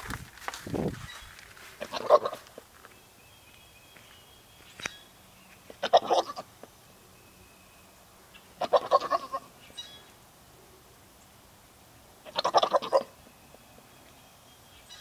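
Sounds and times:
goat bleating: 1.8 - 2.5, 5.8 - 6.5, 8.6 - 9.5, 12.2 - 13.2.

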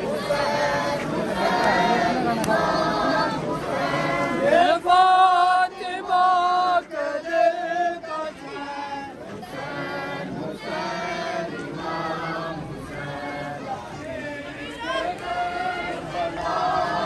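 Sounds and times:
men singing a mourning chant: 0.0 - 17.0.

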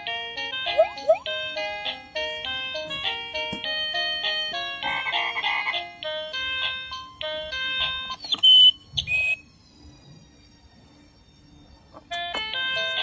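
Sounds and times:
tinny electronic toy melody: 0.0 - 9.6
high electronic tones: 0.7 - 1.4.

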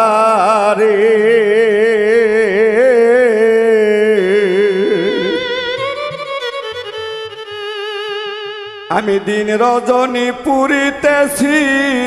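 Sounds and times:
person singing with vibrato: 0.0 - 12.0
held keyboard notes: 4.7 - 8.2.

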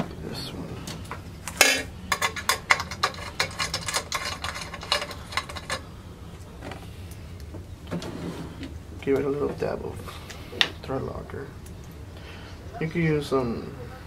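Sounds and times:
small tools clattering: 0.9 - 5.9.

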